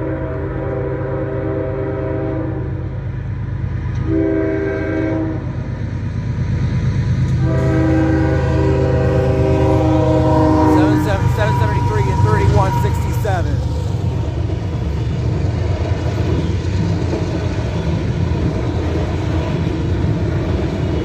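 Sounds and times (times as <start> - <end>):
locomotive air horn blasts: 0.0 - 2.8, 4.0 - 5.6, 7.4 - 13.9
locomotive engine rumbling: 0.0 - 21.0.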